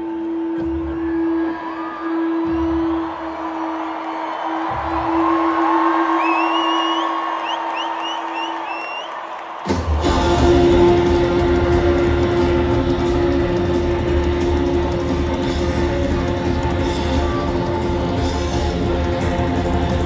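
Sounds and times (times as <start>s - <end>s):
distorted electric guitars and bass: 10.0s - 20.0s.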